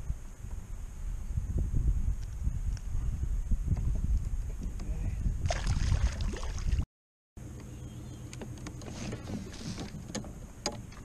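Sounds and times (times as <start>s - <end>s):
wind rumble on microphone: 0.0s - 6.8s
water splashing: 5.4s - 6.8s.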